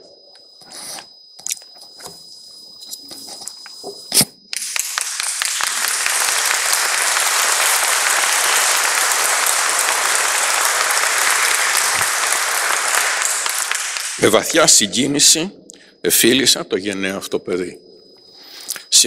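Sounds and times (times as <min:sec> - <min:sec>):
audience applause: 0:04.6 - 0:14.8.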